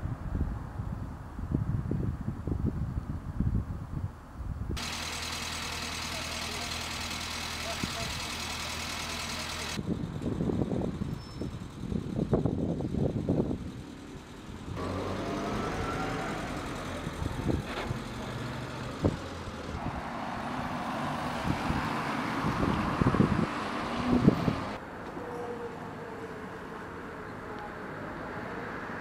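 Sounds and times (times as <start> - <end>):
road traffic: 0.0 - 29.0.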